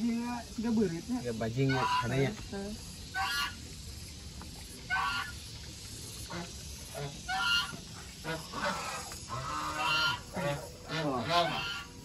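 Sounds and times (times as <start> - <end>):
geese honking: 1.6 - 2.4, 3.1 - 3.6, 4.9 - 5.4, 6.3 - 12.0.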